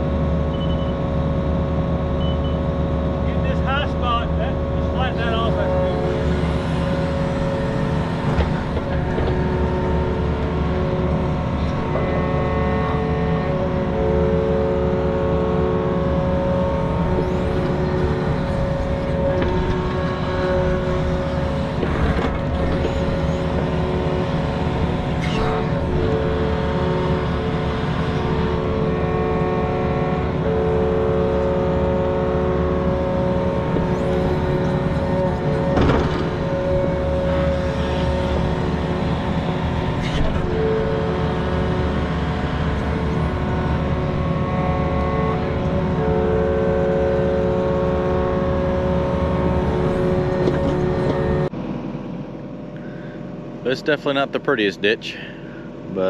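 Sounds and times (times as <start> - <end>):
diesel engine running: 0.0 - 56.0
hydraulic whine: 0.0 - 56.0.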